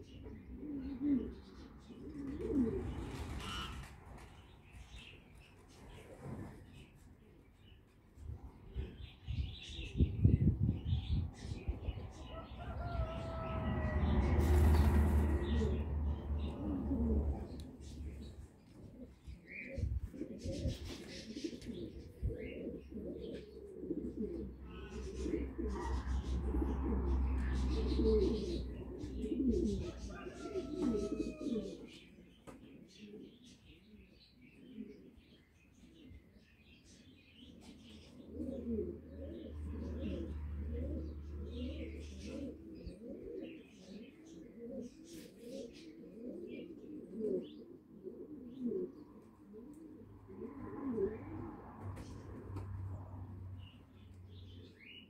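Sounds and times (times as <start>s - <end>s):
doves cooing: 0.0s - 4.0s, 8.6s - 55.0s
birds warbling: 9.0s - 47.7s
low rumble: 10.1s - 18.4s.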